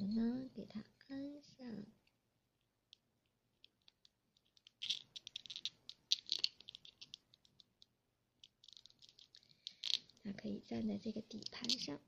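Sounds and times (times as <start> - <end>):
plastic toy clicking: 3.6 - 7.8, 11.3 - 12.0.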